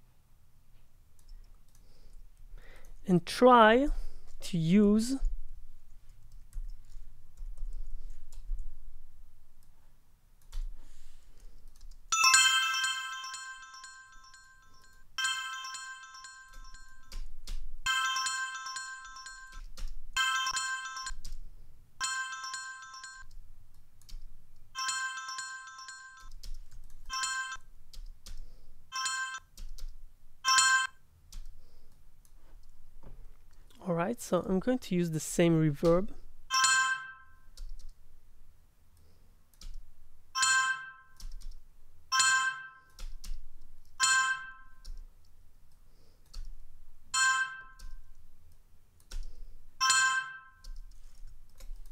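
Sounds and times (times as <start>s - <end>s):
bell-like notification chime: 12.2s - 17.1s, 17.9s - 19.6s, 20.2s - 21.1s, 22.0s - 23.2s, 24.8s - 26.3s.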